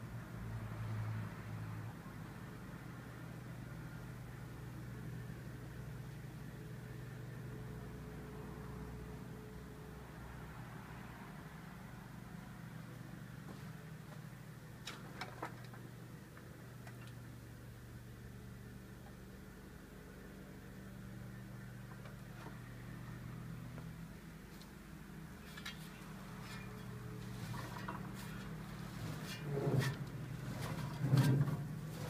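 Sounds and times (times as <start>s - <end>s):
low motor hum: 15.4s - 32.0s.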